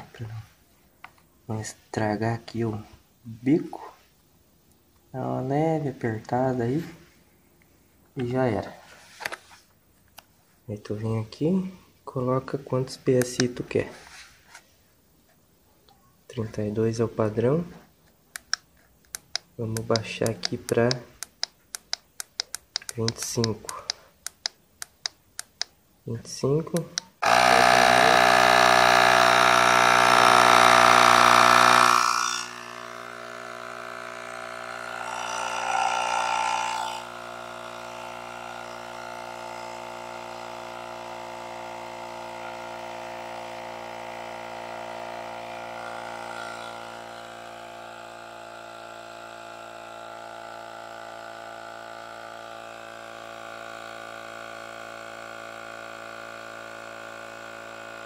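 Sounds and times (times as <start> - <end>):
electric tire inflator running: 27.1 - 58.0.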